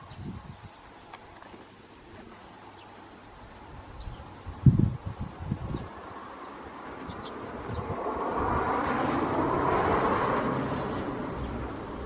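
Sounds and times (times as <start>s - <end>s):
vehicle passing by: 5.9s - 12.0s.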